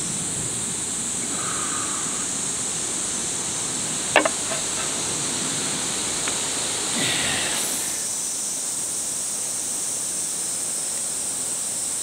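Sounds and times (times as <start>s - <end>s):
steady high hiss: 0.0s - 12.0s
drink can set down on table: 4.2s - 5.0s.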